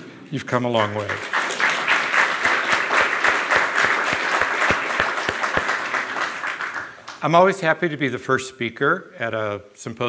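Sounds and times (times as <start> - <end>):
audience applauding: 0.8 - 7.2
close hands clapping: 0.8 - 7.3.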